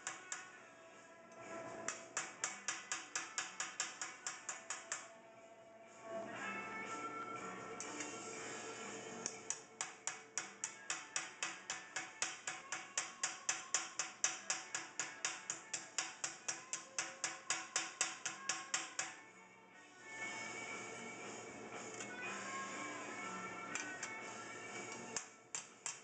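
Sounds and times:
hammer tapping on metal: 1.9s - 5.1s, 9.3s - 19.2s, 25.2s - 26.0s.

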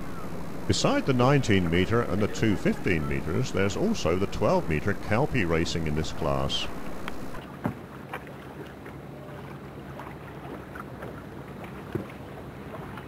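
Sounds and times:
motorboat engine humming: 0.0s - 13.0s.

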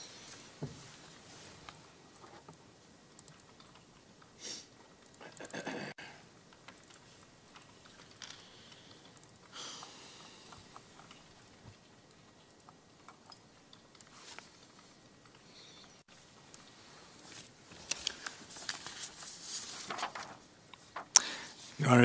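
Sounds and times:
typing on keyboards: 2.2s - 4.3s, 6.5s - 14.1s.

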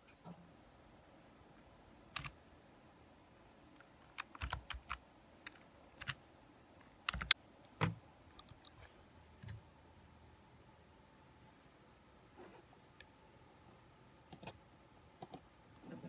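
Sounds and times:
keyboard typing clicks: 3.8s - 6.2s, 7.0s - 8.8s, 14.3s - 14.6s, 15.2s - 15.5s.

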